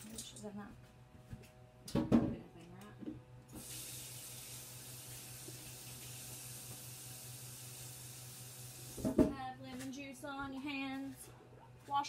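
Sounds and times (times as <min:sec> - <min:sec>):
faucet water running: 0:03.5 - 0:09.2.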